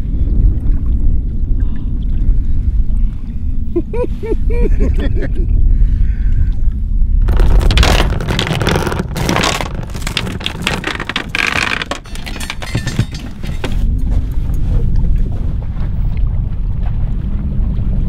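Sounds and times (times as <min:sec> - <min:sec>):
wind on microphone: 0:00.0 - 0:18.0
anchor chain rattling and clanking: 0:07.3 - 0:13.9.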